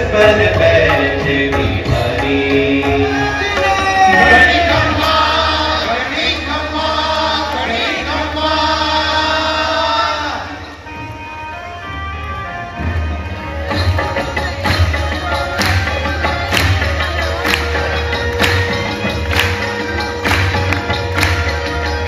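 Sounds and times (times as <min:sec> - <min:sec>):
low musical accompaniment: 0:00.0 - 0:22.0.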